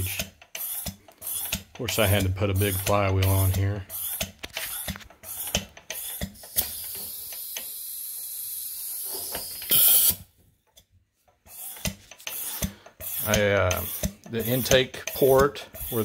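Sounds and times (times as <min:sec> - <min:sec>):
steady air hiss: 0:05.3 - 0:10.2
short loud air blast: 0:08.8 - 0:10.2.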